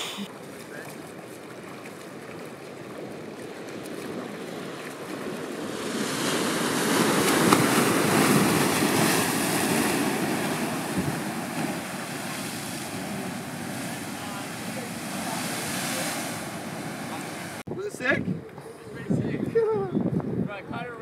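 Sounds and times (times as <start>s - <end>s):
ocean wave breaking: 0.0s - 17.7s.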